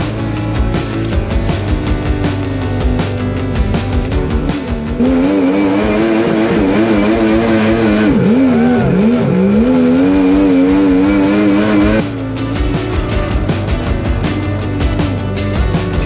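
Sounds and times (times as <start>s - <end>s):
boat engine at high revs: 4.2s - 12.2s.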